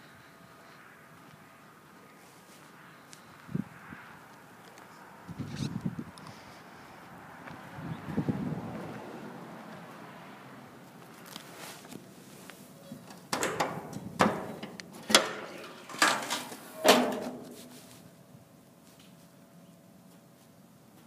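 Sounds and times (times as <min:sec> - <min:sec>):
metal tool box latch clacks: 0:13.3 - 0:17.4
aluminum door ringing: 0:13.3 - 0:17.6.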